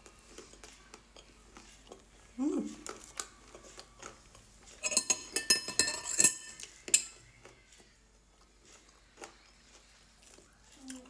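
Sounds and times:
glass ringing: 4.8s - 7.1s
metal spoon clinking on glass bowl: 4.8s - 7.2s.

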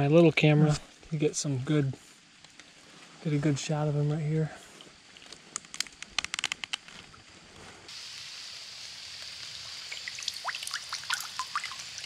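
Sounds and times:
sharp plastic clicks: 5.5s - 6.9s
creek water running over rocks: 7.9s - 12.0s.

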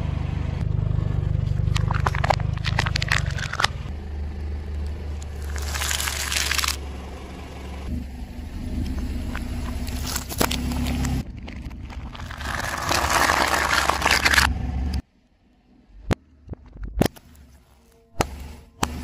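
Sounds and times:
idling car engine hum: 0.0s - 19.0s
car tyre crushing small objects: 1.4s - 3.9s, 4.7s - 6.9s, 8.8s - 15.0s.

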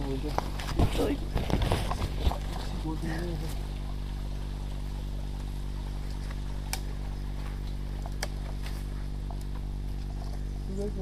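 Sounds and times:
low electrical hum: 0.0s - 11.0s
twigs snapping: 5.4s - 10.5s.

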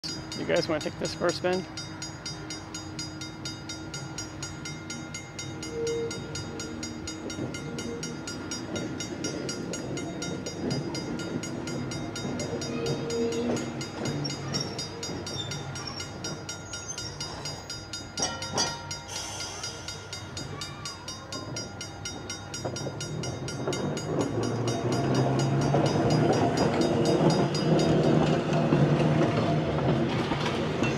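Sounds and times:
streetcar wheels on rails: 0.0s - 30.9s.

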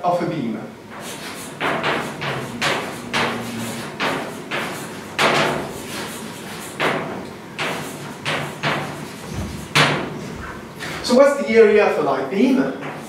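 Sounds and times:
chalk writing on blackboard: 0.9s - 10.6s.

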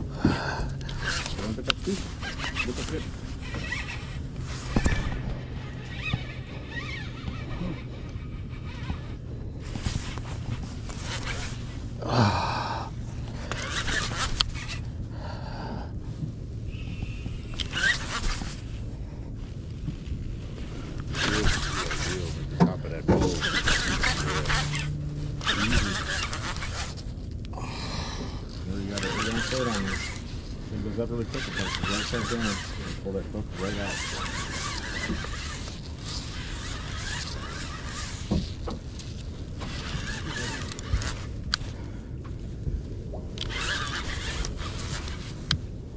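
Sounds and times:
steady low rumble: 0.0s - 29.0s, 34.2s - 45.9s
steady low hum: 0.0s - 45.9s
fishing reel cranking: 0.7s - 9.2s, 13.4s - 14.8s, 17.4s - 18.4s, 21.0s - 22.5s, 23.2s - 27.0s, 28.7s - 30.2s, 31.2s - 41.7s, 43.4s - 45.4s
man grunting: 12.0s - 12.8s
man gasping breaths: 27.5s - 28.5s.

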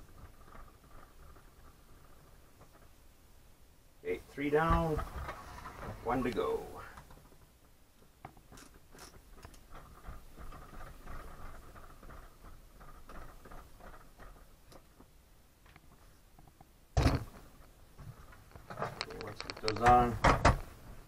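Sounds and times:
screw creaking into plastic: 18.5s - 20.1s.

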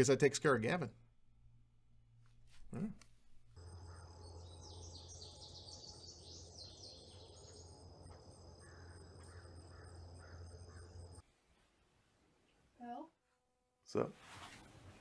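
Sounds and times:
bird chirps: 3.6s - 11.2s
crickets trilling: 3.6s - 11.2s.

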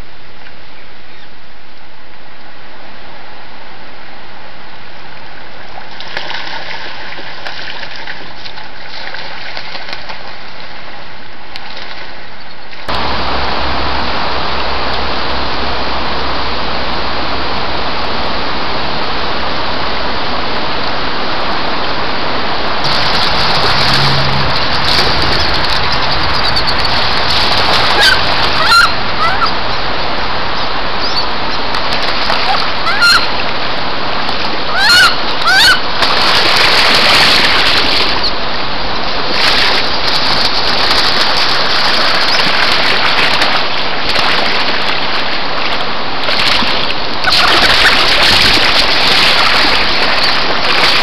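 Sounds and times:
stream rushing: 1.4s - 51.0s
wood duck calls: 25.1s - 29.8s, 32.4s - 33.3s, 34.7s - 35.8s.

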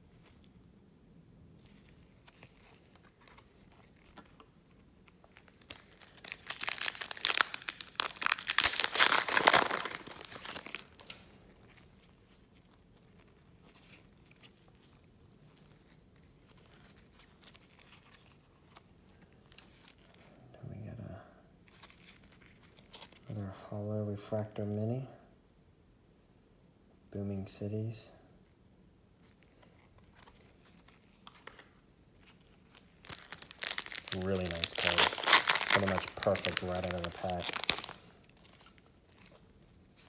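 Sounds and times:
foil wrapper tearing and crinkling: 5.4s - 11.2s, 32.5s - 39.5s
faint card handling: 29.2s - 40.0s.

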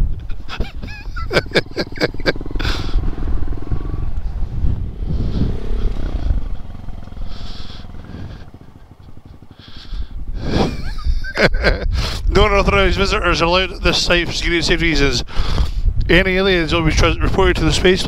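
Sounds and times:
motorcycle engine running at low speed: 0.0s - 11.3s.

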